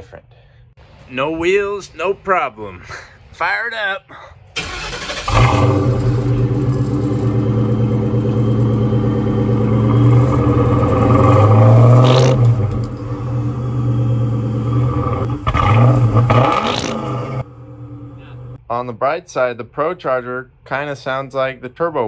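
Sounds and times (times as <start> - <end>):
car engine starting and running: 4.6 - 18.6
engine revving with rising whine: 5.1 - 18.6.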